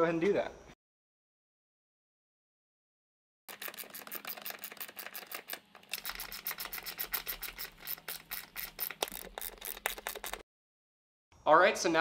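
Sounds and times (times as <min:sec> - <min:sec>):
hand ratchet clicking: 0:03.5 - 0:10.4.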